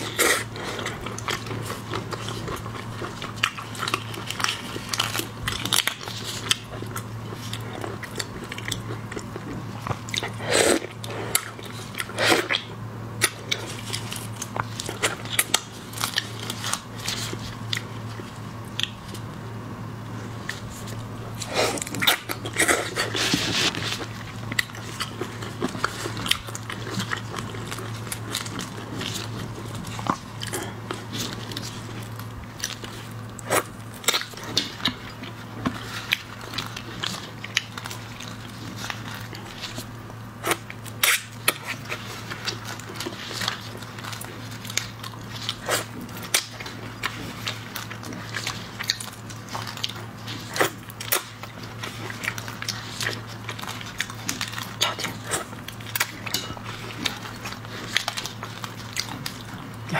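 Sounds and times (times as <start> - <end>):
person chewing with wet smacks: 0.0 - 19.4, 20.1 - 59.9
steady low hum: 0.0 - 59.9.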